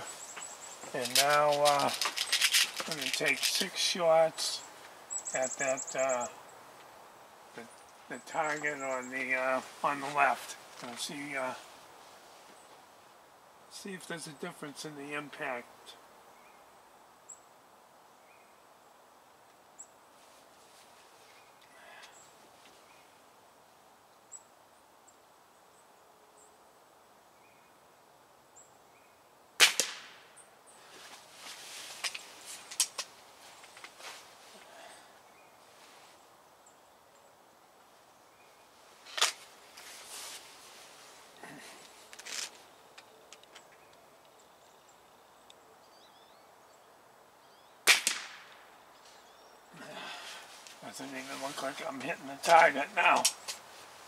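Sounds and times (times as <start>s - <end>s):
air rifle shot crack: 29.6s - 30.3s, 47.8s - 48.6s.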